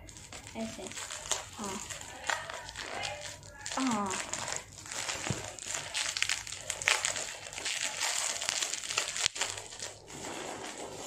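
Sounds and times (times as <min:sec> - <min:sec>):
bubble wrap crinkling and crackling: 0:00.0 - 0:11.0.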